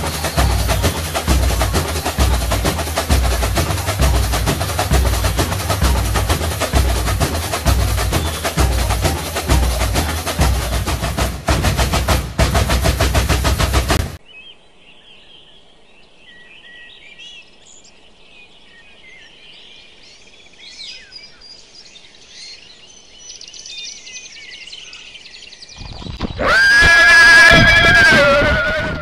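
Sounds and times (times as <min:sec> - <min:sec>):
birds chirping and singing: 0:00.0 - 0:11.5, 0:14.2 - 0:29.0
loud percussive music: 0:00.0 - 0:14.2.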